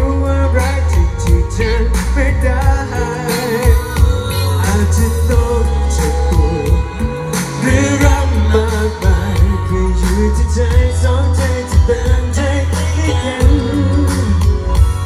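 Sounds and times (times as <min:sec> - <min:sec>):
heavy bass and drums: 0:00.0 - 0:15.0
live pop song: 0:00.0 - 0:15.0
man singing: 0:00.0 - 0:15.0.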